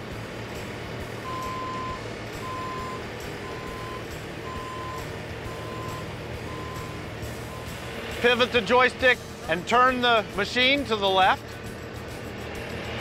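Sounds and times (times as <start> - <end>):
diesel engine running: 0.0 - 13.0
backup alarm beeping: 1.2 - 7.8.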